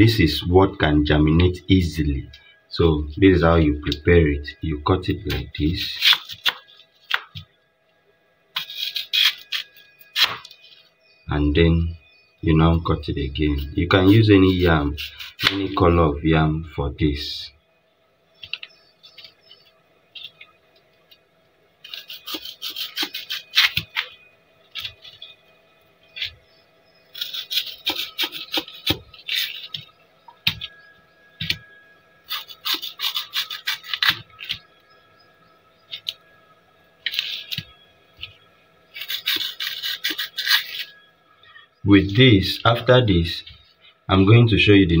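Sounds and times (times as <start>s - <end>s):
knife sawing and scraping yam: 5.2s - 6.8s, 8.6s - 10.5s, 13.6s - 15.8s, 21.8s - 24.2s, 27.1s - 29.9s, 32.2s - 34.6s, 38.9s - 41.0s.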